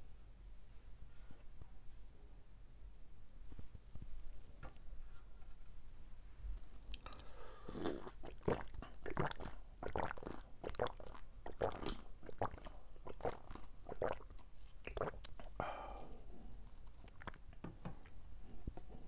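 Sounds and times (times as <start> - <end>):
gulping and swallowing: 7.7 - 15.6, 16.9 - 17.6.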